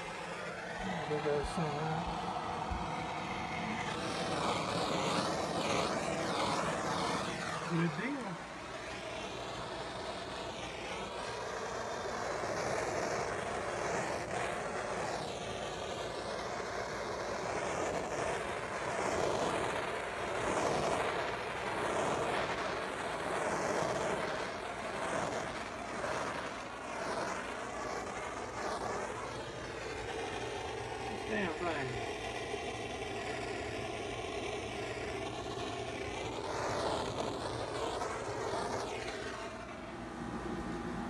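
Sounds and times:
gas torch flame hissing: 0.0s - 41.0s.

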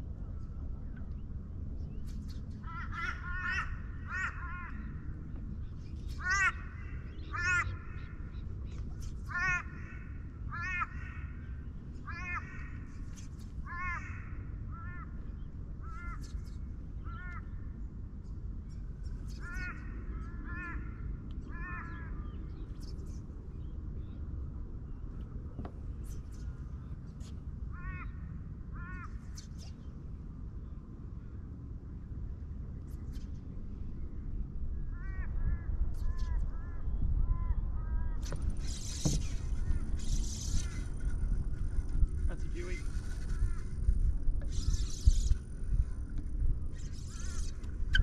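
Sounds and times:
steady low rumble: 0.0s - 48.0s
crow cawing: 2.6s - 4.9s, 6.2s - 8.1s, 9.3s - 11.4s, 12.0s - 12.9s, 13.7s - 15.2s.

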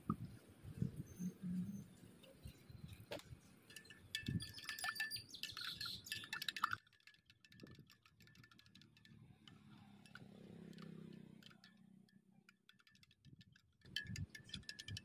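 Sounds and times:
small ringing chimes: 3.6s - 6.8s.

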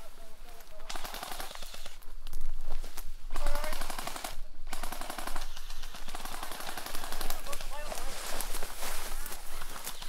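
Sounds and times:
airsoft guns firing full-auto bursts: 0.9s - 2.0s, 3.3s - 8.1s.

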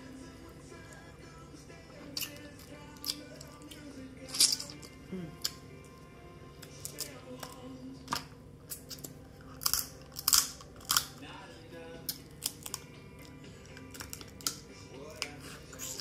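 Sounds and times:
chewing: 2.0s - 5.6s
crab shells cracking: 8.1s - 11.2s, 12.1s - 12.9s, 13.8s - 14.6s.

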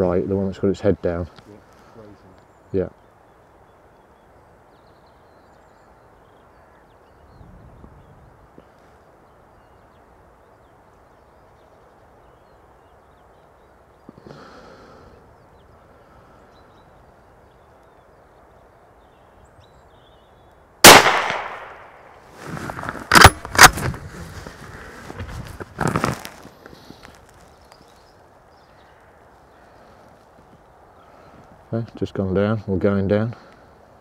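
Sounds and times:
rifle shot: 20.8s - 22.1s, 23.1s - 23.9s.

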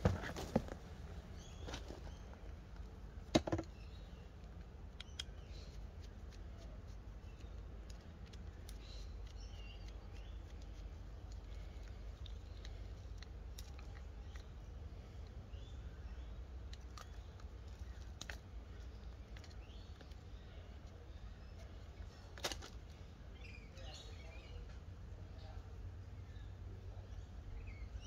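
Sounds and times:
clicks and rustles of wires handled: 1.5s - 3.8s, 4.4s - 14.6s, 16.7s - 21.0s, 21.6s - 23.0s.

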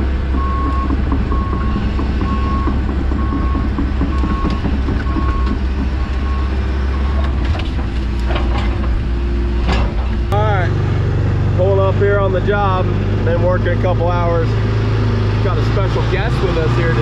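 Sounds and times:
sharp knocks: 0.0s - 6.7s
diesel engine running: 0.0s - 17.0s
backup alarm beeping: 0.3s - 7.3s.

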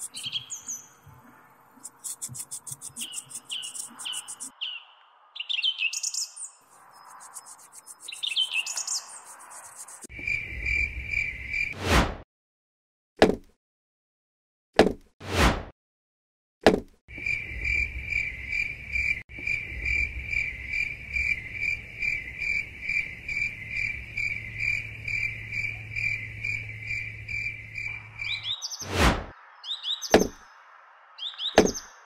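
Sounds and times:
quick high chirps: 0.0s - 0.6s, 1.8s - 4.5s, 6.7s - 10.1s
cricket chirping: 0.0s - 4.5s, 6.0s - 11.8s, 17.1s - 28.6s.

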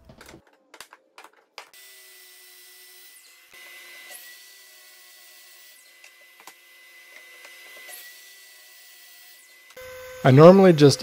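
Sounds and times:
miter saw cutting wood: 1.8s - 11.0s.

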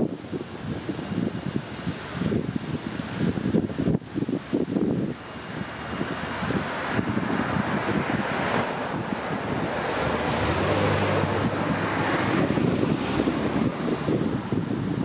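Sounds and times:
wind buffeting microphone: 0.0s - 15.0s
cars passing: 4.5s - 15.0s.

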